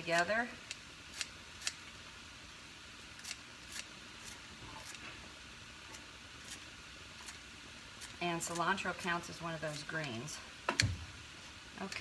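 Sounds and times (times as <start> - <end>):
scissors snipping herbs: 0.0 - 1.8, 3.2 - 5.0.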